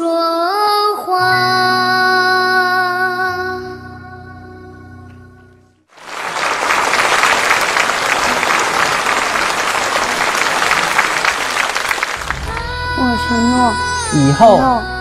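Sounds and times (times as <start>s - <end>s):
audience applause: 5.9s - 12.6s
song accompaniment held notes: 12.2s - 15.0s.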